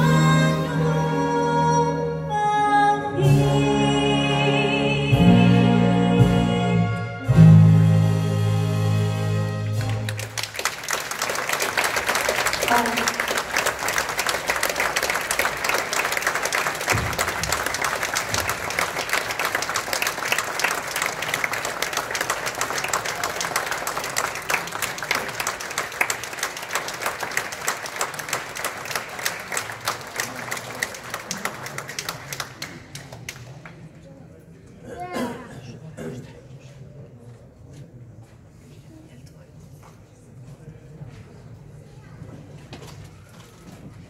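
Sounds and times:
audience applauding: 9.7s - 33.8s.

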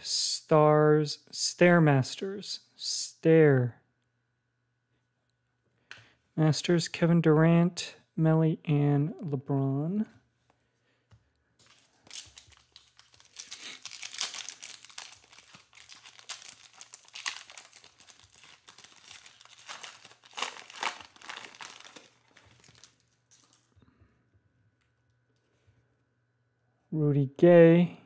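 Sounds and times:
foil wrapper crinkling: 11.6s - 23.7s.

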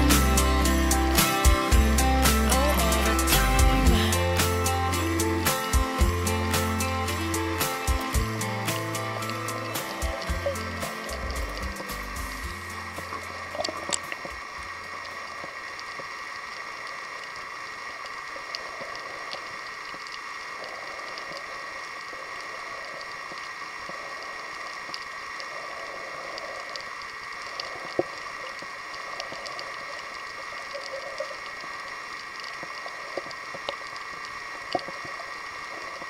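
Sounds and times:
crackles and small pops: 9.2s - 36.0s.

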